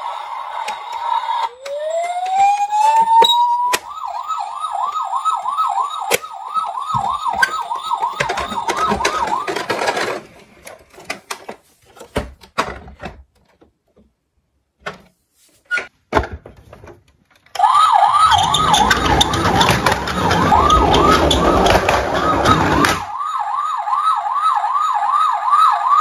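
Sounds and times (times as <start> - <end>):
toy siren yelping: 0.1 - 10.2, 17.6 - 26.0
knocks and clicks: 6.0 - 14.0, 17.4 - 23.2.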